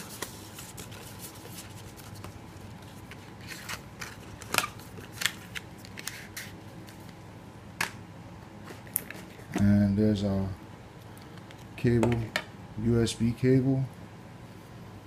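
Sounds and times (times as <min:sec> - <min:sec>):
paper and cardboard rustling: 0:00.0 - 0:07.1.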